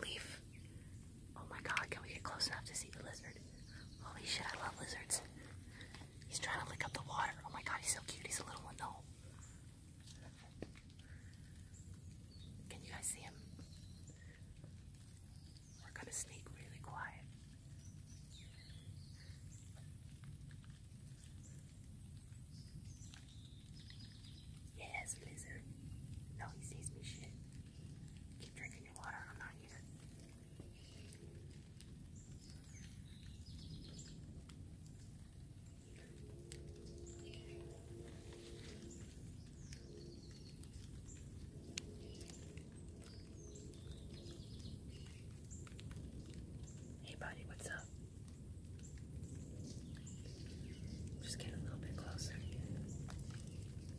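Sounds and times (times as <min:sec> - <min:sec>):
faint bird chirps: 0:00.0 - 0:20.1, 0:22.4 - 0:34.3
low steady rumble: 0:00.0 - 0:53.9.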